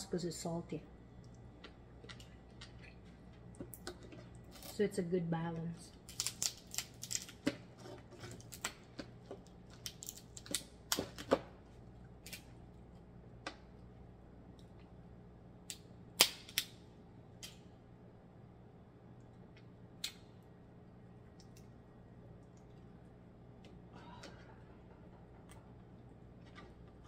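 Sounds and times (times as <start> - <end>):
crab shells cracking: 5.9 - 11.4, 12.1 - 12.6, 15.7 - 16.8.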